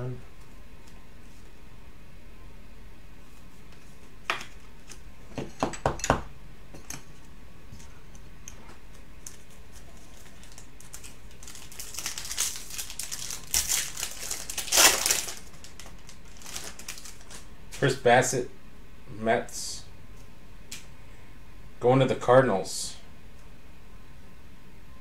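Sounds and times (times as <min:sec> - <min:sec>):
foil card pack crinkling and tearing: 0:09.3 - 0:17.5.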